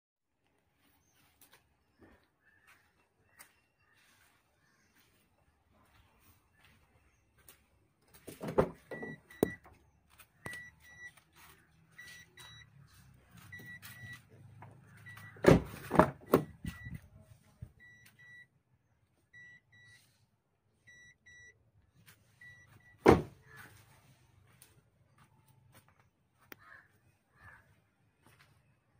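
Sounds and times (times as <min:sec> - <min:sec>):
car warning beeper double beeps: 0:08.8 - 0:09.7, 0:10.4 - 0:11.2, 0:11.9 - 0:12.8, 0:13.4 - 0:14.3, 0:14.9 - 0:18.5, 0:19.3 - 0:20.1, 0:20.8 - 0:21.6, 0:22.4 - 0:23.6.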